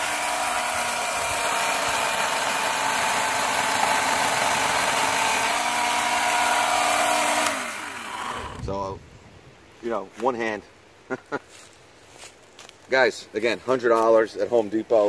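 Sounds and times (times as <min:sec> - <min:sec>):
electric chainsaw cutting branch: 0:00.0 - 0:08.7.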